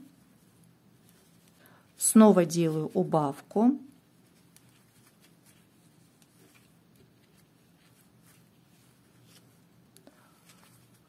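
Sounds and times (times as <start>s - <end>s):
crochet hook ticks and yarn rustles: 4.3s - 8.0s.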